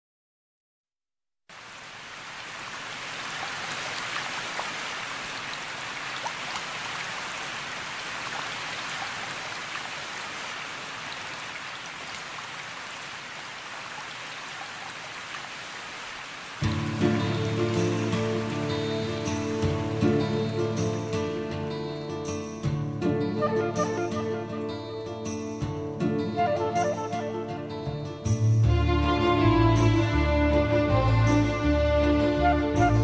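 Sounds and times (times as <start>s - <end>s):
rain hissing: 1.5s - 21.5s
faint raindrop ticks: 5.5s - 6.8s.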